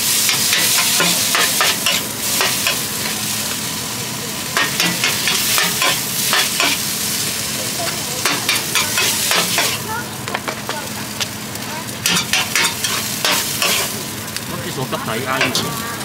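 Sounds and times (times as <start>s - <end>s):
noodles sizzling in a wok: 0.0s - 16.0s
metal spatula scraping a pan: 0.3s - 2.8s, 4.6s - 6.9s, 8.2s - 9.8s, 12.0s - 14.0s.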